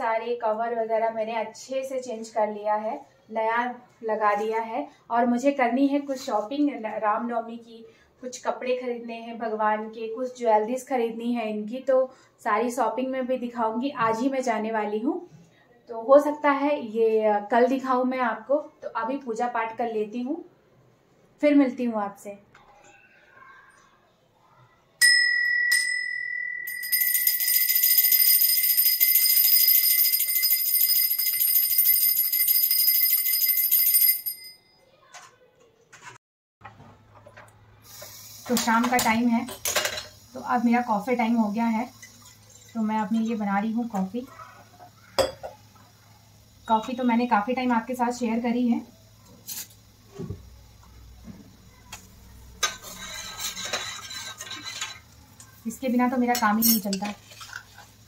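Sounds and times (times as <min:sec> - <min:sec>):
brass bell ringing: 0:25.0 - 0:34.7
metal spoon scraping saucepan: 0:42.0 - 0:43.4, 0:52.6 - 0:55.6, 0:56.2 - 0:58.0.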